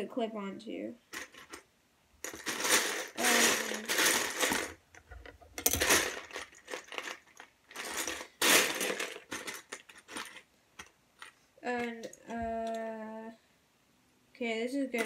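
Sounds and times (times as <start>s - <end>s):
plastic bricks clattering in bin: 2.2s - 12.8s.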